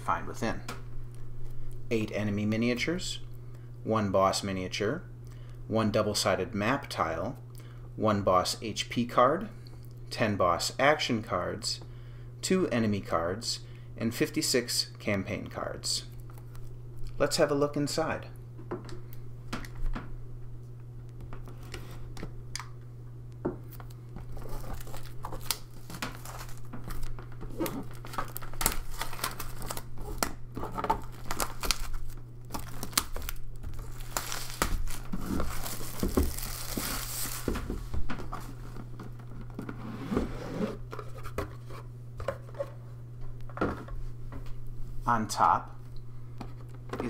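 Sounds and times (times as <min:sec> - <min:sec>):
plastic shrink wrap crinkling: 0:23.8 - 0:38.8.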